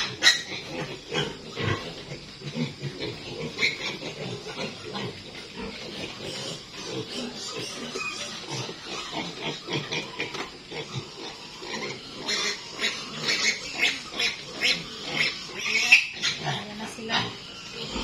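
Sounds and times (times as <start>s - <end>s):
piglet squealing: 6.3s - 10.3s, 11.0s - 16.5s.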